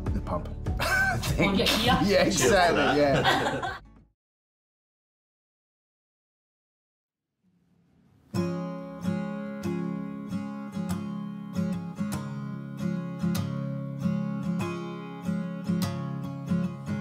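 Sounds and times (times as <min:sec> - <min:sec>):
acoustic guitar strumming: 0:08.3 - 0:17.0.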